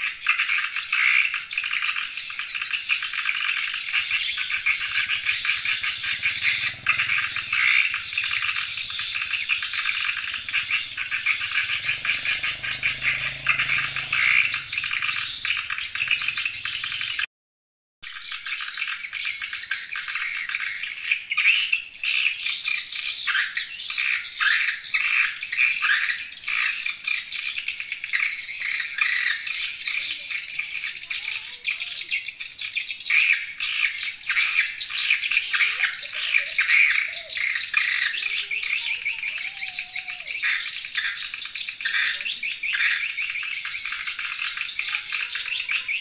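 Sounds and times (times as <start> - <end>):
swiftlet chirps and twitters: 0.0 - 17.3, 18.1 - 46.0.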